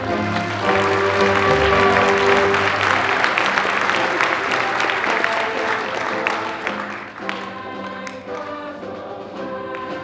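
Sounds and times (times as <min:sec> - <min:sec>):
audience applause: 0:00.0 - 0:07.5
choir and band holding a chord: 0:00.0 - 0:10.0.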